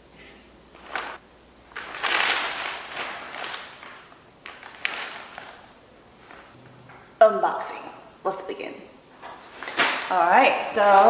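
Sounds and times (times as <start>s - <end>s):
plastic packaging crinkling: 0.8s - 6.6s, 9.4s - 11.0s.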